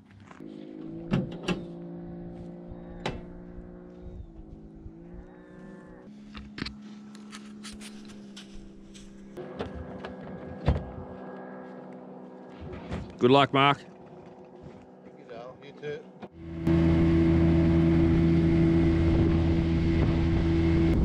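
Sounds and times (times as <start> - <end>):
cattle mooing: 4.8 - 6.2.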